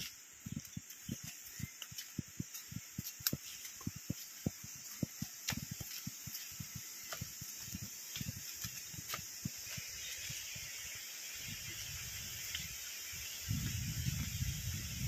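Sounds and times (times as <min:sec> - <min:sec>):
footsteps on dry leaves: 0:00.0 - 0:10.8
steady high hiss: 0:00.0 - 0:15.0.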